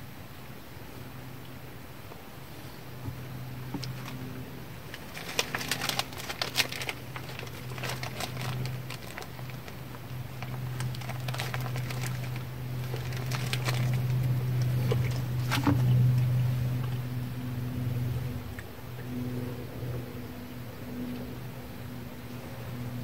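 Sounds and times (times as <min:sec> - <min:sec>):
steady low hum: 0:00.0 - 0:23.0
plastic wrapping crinkling: 0:03.8 - 0:04.2, 0:04.9 - 0:16.0.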